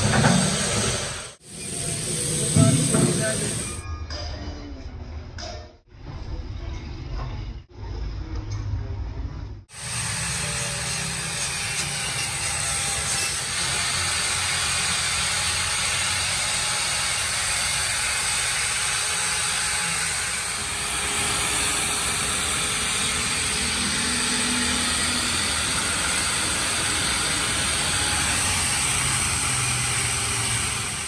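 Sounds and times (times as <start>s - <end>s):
angle grinder grinding metal: 9.7s - 31.0s.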